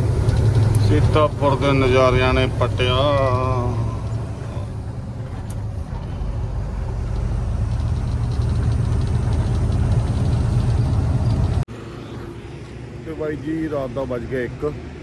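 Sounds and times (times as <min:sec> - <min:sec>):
truck engine and road noise: 0:00.0 - 0:15.0.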